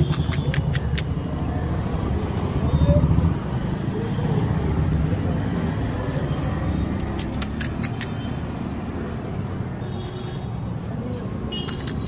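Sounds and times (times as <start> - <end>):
sharp crisp clicks: 0.0 - 1.2, 7.0 - 8.3, 11.6 - 12.0
roadside traffic rumble: 0.0 - 12.0.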